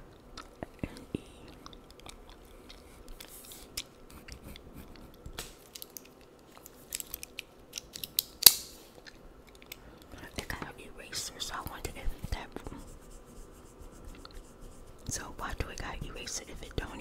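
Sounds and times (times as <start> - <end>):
pen scratching on paper: 12.3 - 15.2.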